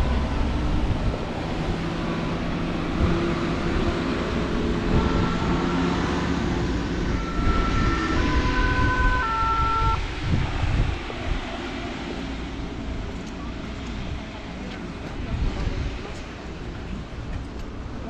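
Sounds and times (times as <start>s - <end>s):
road rumble: 0.0s - 18.0s
tram passing: 0.0s - 18.0s
wind: 0.0s - 18.0s.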